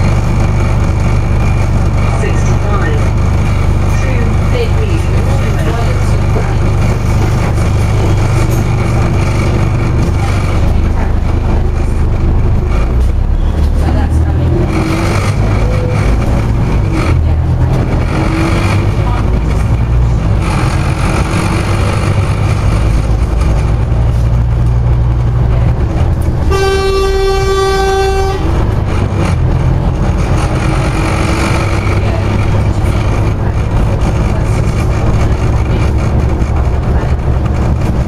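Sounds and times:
bus engine and road noise: 0.0s - 38.0s
vehicle horn: 26.4s - 28.7s.

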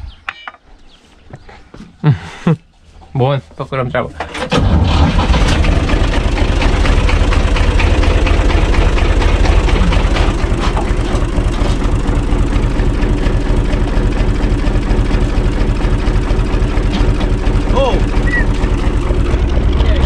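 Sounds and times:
tractor diesel engine running: 4.2s - 20.0s.

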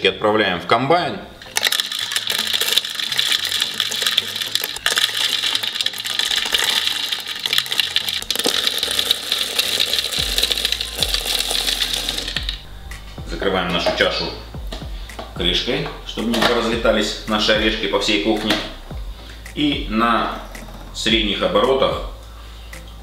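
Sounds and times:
peanuts rattling in plastic bowl: 1.5s - 12.6s.

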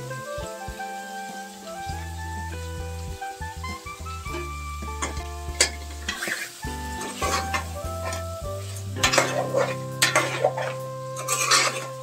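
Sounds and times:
chicken frying and sizzling: 0.0s - 12.0s
metal spoon scraping a pot: 5.6s - 8.2s, 9.0s - 12.0s.

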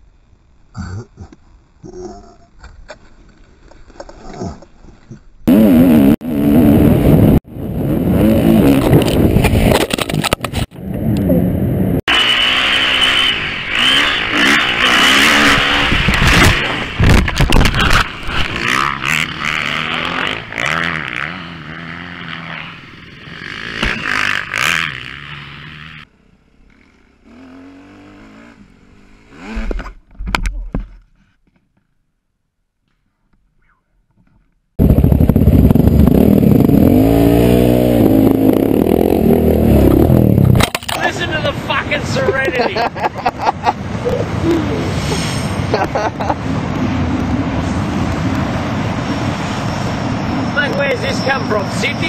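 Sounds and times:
dirt bike engine revving: 5.5s - 9.7s, 12.1s - 26.1s, 26.7s - 29.9s, 34.8s - 42.4s.

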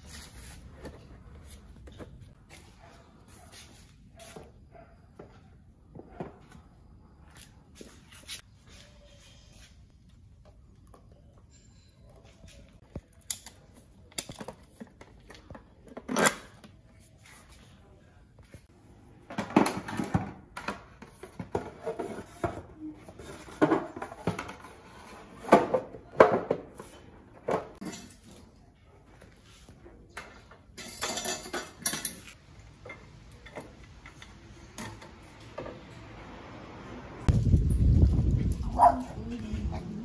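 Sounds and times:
metal parts clinking and clattering: 30.8s - 32.4s.

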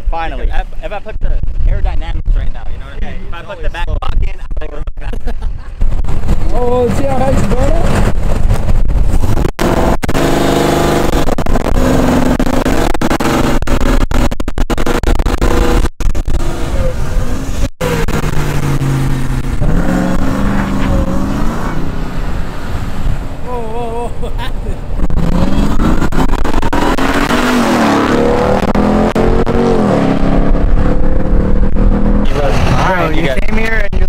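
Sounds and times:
diesel truck engine revving: 6.1s - 23.5s, 24.8s - 33.4s.

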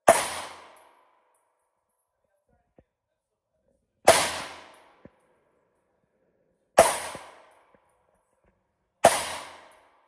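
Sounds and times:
rifle shots echoing: 0.0s - 1.0s, 4.1s - 5.1s, 6.8s - 7.7s, 9.0s - 10.0s.

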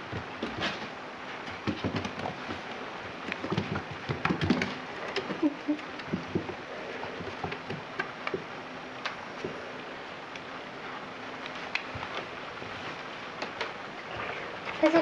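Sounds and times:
puppy claws on wooden floor: 0.0s - 9.6s.

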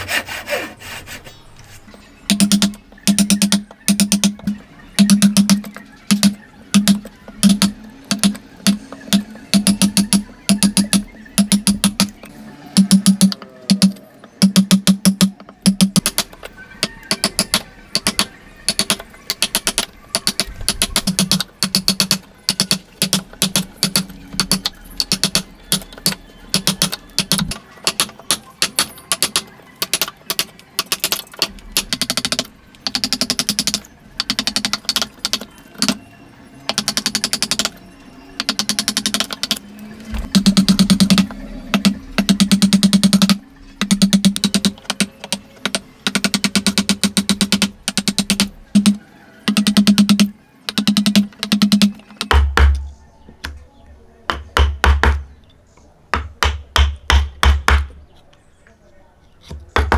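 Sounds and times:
mallet knocking on chisel: 54.3s - 55.2s, 56.2s - 57.9s.

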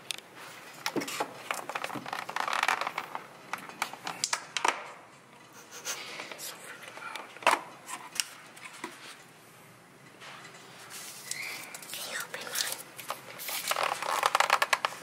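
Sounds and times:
plastic crinkling: 1.4s - 4.3s, 11.0s - 15.0s.

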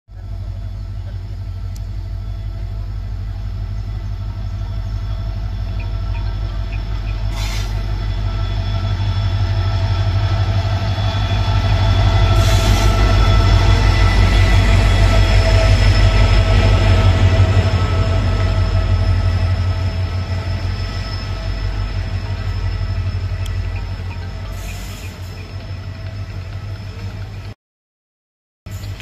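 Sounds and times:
diesel locomotive engine drone: 0.1s - 27.6s, 28.7s - 29.0s
short bursts of hiss: 7.3s - 7.8s.

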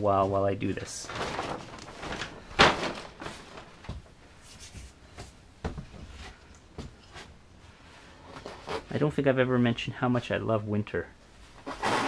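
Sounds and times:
light knocks and bumps: 2.1s - 7.3s.

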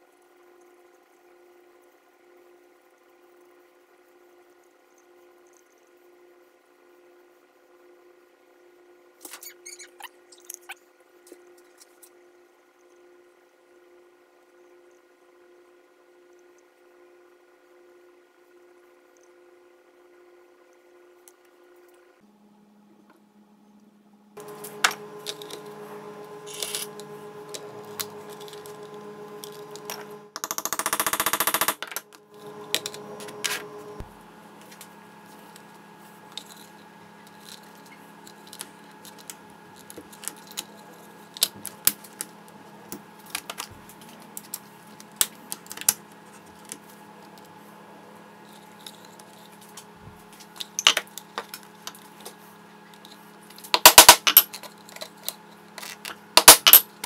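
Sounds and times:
steady low hum: 22.3s - 30.4s, 31.6s - 53.7s.

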